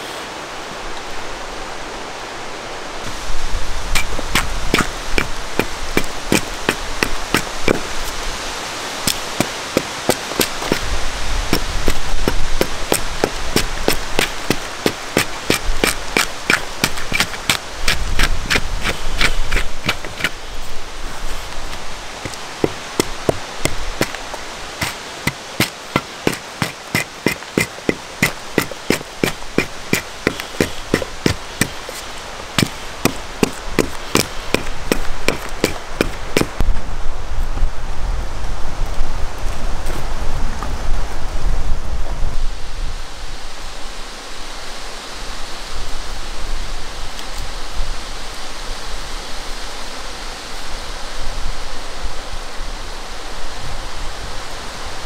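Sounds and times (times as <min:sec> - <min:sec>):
steady hiss: 0:00.0 - 0:55.0
hatchet chopping wood: 0:04.0 - 0:08.0, 0:09.1 - 0:10.9, 0:11.6 - 0:20.4, 0:22.2 - 0:24.2, 0:24.8 - 0:36.6.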